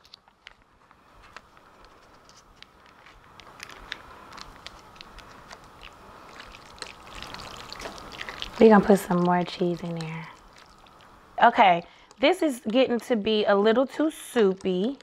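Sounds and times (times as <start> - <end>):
plastic bag crinkling: 0.0 - 11.2.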